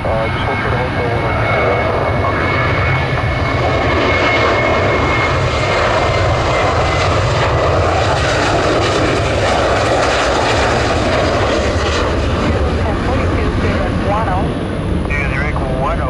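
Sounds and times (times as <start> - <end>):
jet engines roaring: 0.0 - 16.0.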